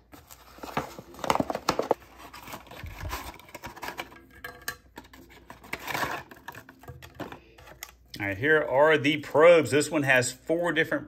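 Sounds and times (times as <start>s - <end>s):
cardboard packaging rubbing: 0.0s - 4.0s.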